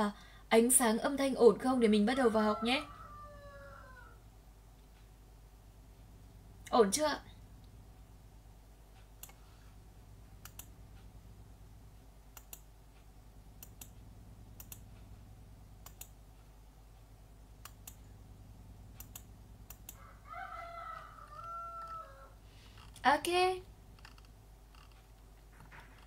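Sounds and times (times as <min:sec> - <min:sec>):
rooster crowing: 0:02.1 - 0:04.3, 0:19.9 - 0:22.4
faint clicks: 0:08.9 - 0:09.4, 0:10.4 - 0:11.1, 0:12.3 - 0:15.1, 0:15.8 - 0:18.2, 0:18.9 - 0:20.0.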